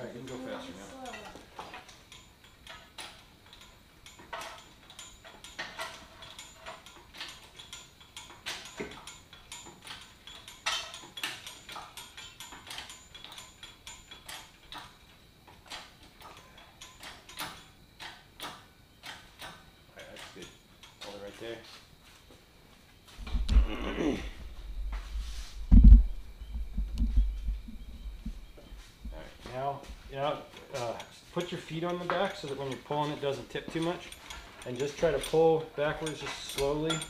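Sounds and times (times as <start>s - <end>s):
lifting chains clanking: 0.0s - 21.6s, 28.4s - 37.0s
hydraulic hoist pump clicks: 30.5s - 37.0s.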